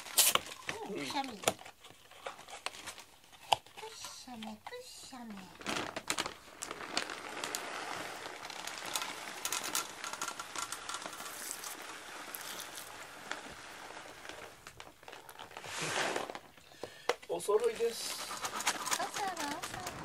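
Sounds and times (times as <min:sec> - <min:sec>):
dry food pellets pattering: 0:00.0 - 0:20.0.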